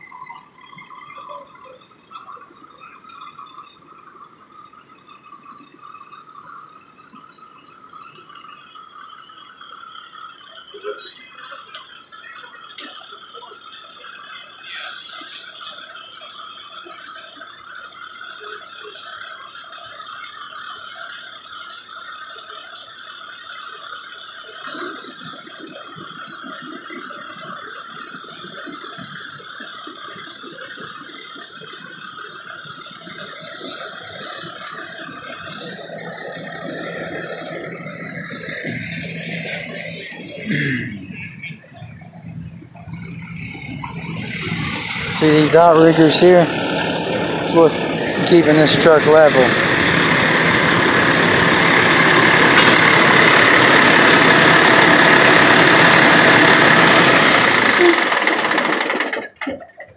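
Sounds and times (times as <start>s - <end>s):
diesel engine running: 0.0s - 59.9s
hydraulic system whirring: 23.5s - 59.6s
low steady hum: 24.7s - 58.2s.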